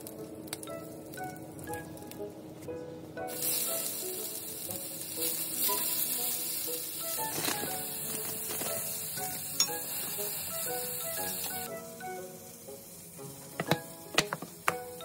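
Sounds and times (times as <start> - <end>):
light background music: 0.0 - 15.0
bean sprouts sizzling in a pan: 3.2 - 15.0.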